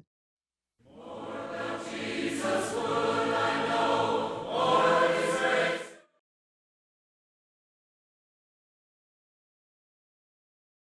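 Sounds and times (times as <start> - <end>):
choir singing held chords: 0.8 - 6.2.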